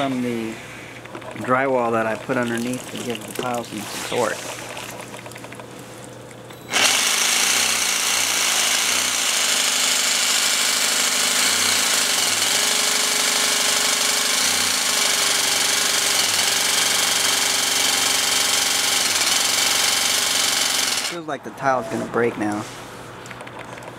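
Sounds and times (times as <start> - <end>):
jigsaw sawing through tile: 6.7 - 21.2.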